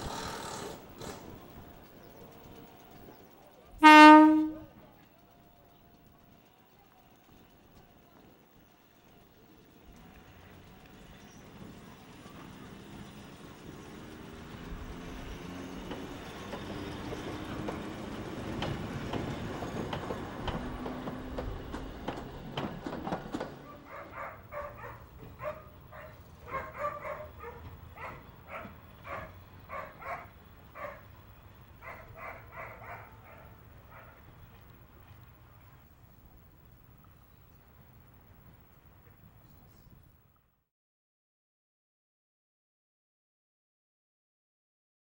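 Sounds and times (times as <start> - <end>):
wheels clicking on rail joints: 0.0 - 40.4
dog barking: 23.6 - 31.1, 31.8 - 34.2.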